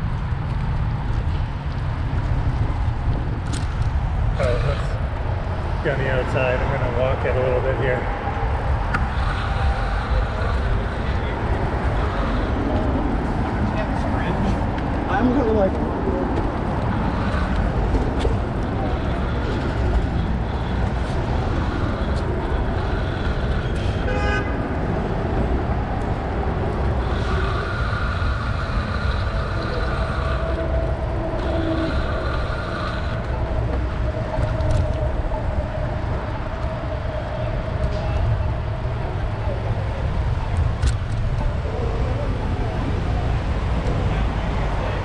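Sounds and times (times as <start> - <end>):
street traffic: 0.0 - 45.0
wind rumble on microphone: 0.0 - 45.0
vehicle horn: 23.7 - 24.6.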